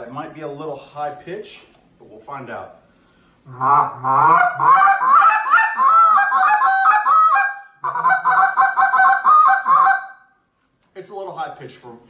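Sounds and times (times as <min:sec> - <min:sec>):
duck call blown in short notes: 0:03.5 - 0:10.2.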